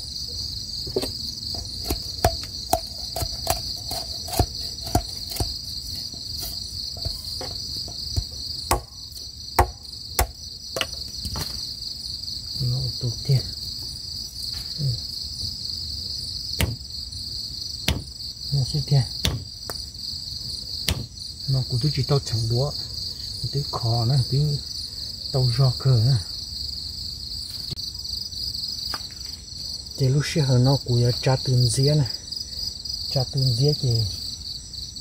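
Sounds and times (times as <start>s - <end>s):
crickets chirping: 0.0s - 35.0s
machete striking metal rod: 1.6s - 5.5s, 8.2s - 10.4s, 16.6s - 16.8s, 17.9s - 18.1s, 19.2s - 19.5s, 20.9s - 21.1s.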